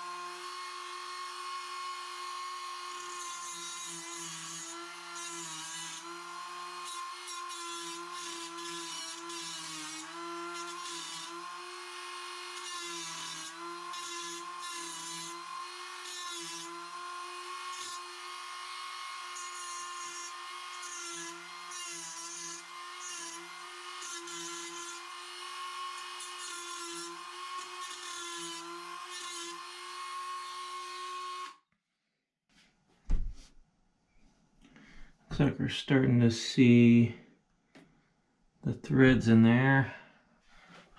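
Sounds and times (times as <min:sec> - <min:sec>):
power tool whining: 0:00.0 - 0:31.6.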